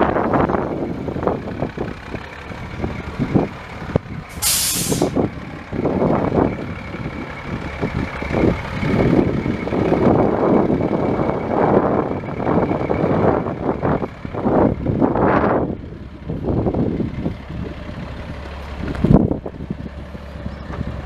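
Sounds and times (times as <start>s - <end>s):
diesel truck engine rumbling: 0.0s - 21.0s
air brake hiss: 4.3s - 5.2s.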